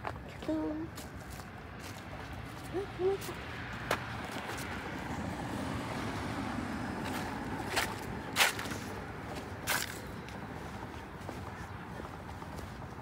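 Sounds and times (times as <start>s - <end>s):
car driving past: 3.5s - 9.2s.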